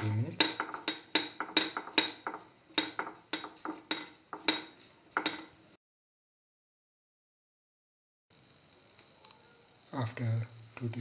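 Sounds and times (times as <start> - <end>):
spatula scraping and clacking on pan: 0.0 - 5.6.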